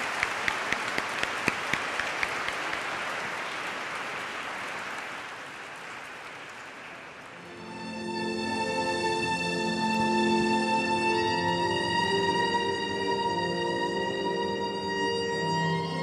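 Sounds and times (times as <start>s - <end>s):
sharp close claps: 0.0s - 7.3s
crowd applauding: 0.0s - 7.6s.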